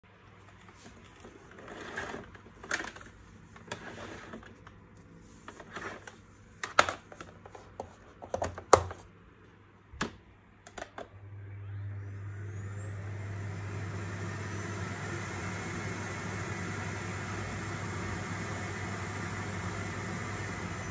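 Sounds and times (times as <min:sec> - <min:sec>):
vacuum cleaner motor whine: 0:11.1 - 0:20.9.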